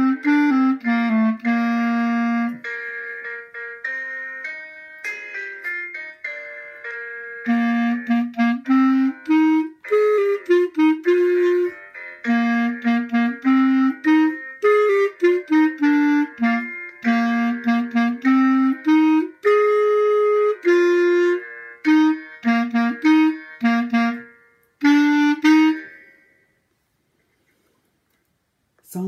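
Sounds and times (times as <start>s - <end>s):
clarinet melody: 0.0s - 26.2s.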